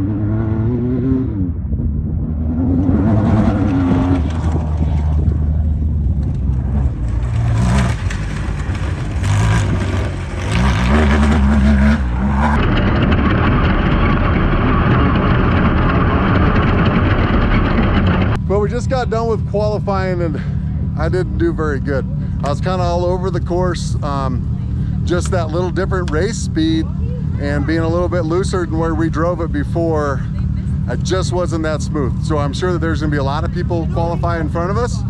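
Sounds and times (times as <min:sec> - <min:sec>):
race car engine revving: 0:00.0 - 0:35.0
wind noise: 0:01.3 - 0:18.8.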